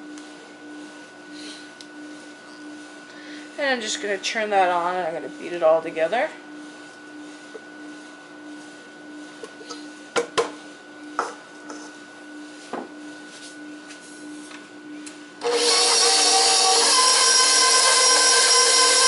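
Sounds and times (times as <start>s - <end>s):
stand mixer motor whine: 15.4s - 19.0s.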